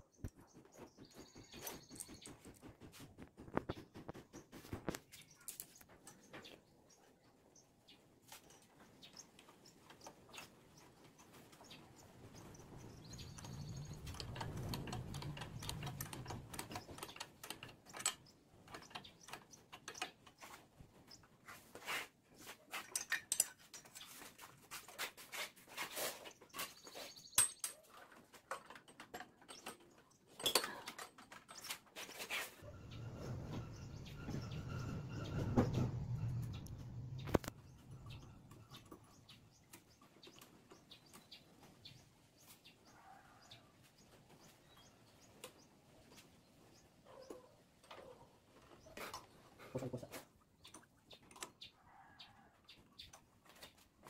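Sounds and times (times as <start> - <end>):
small metal clicks and taps: 13.3 - 20.5, 22.8 - 24.1.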